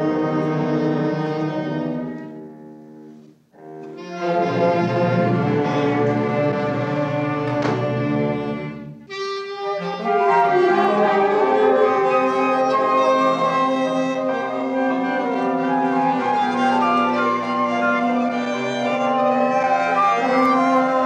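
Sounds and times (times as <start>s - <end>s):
clarinet: 0.0s - 21.0s
bowed strings: 3.0s - 21.0s
brass instruments: 3.6s - 21.0s
flute: 8.4s - 21.0s
trumpet: 8.5s - 21.0s.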